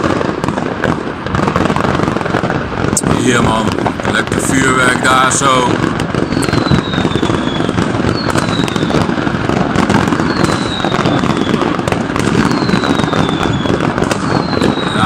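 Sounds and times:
fireworks crackling and banging: 0:00.0 - 0:15.0
high falling firework whistle: 0:05.3 - 0:15.0.

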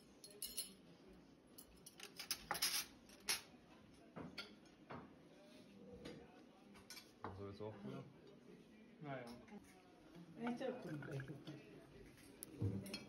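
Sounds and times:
cutlery clinking on plates: 0:01.6 - 0:03.5, 0:04.2 - 0:05.1, 0:06.0 - 0:07.3, 0:12.1 - 0:13.0.

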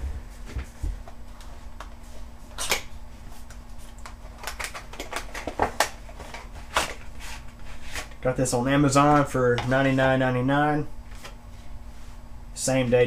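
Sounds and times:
faint steady hum: 0:00.0 - 0:13.0
packaging clicks taps and rustles: 0:04.0 - 0:07.0.

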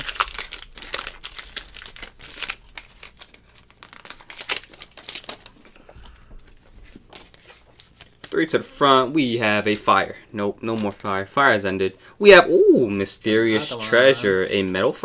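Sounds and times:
foil wrappers crinkling: 0:00.0 - 0:08.6.

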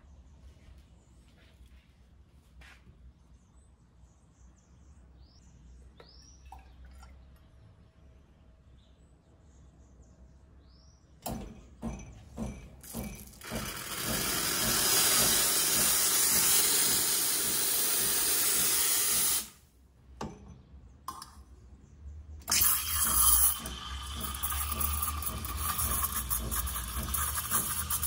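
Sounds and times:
steam wand hissing: 0:12.9 - 0:19.6, 0:22.5 - 0:28.0.

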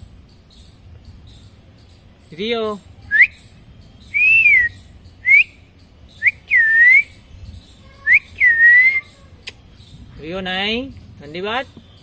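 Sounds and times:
two-part whistles: 0:03.1 - 0:03.4, 0:04.1 - 0:05.6, 0:06.2 - 0:07.2, 0:08.1 - 0:09.0.

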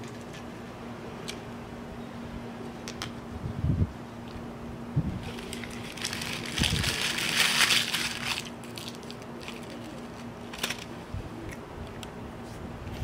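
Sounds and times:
paper wrapper crinkling: 0:05.2 - 0:10.9.

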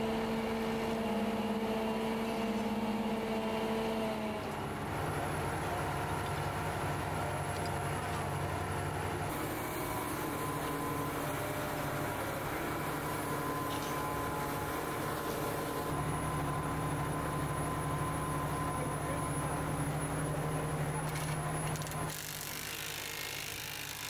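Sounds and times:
crane diesel engine running: 0:00.0 - 0:22.1.

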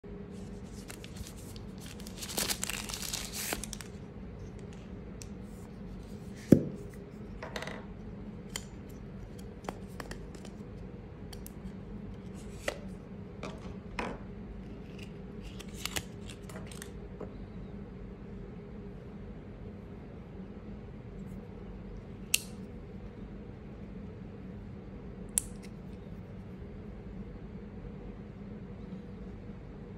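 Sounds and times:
faint steady hum: 0:00.0 - 0:29.9
paper rustling and tearing: 0:00.3 - 0:04.0.

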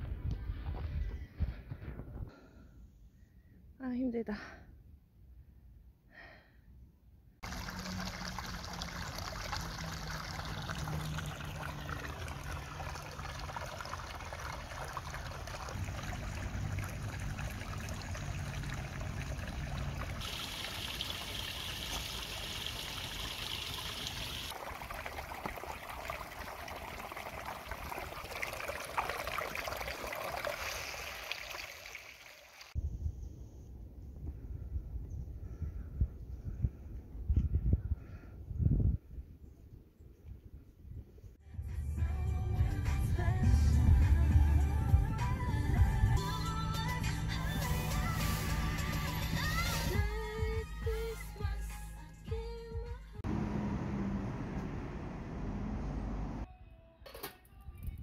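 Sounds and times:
stream splashing over rocks: 0:07.4 - 0:32.8.

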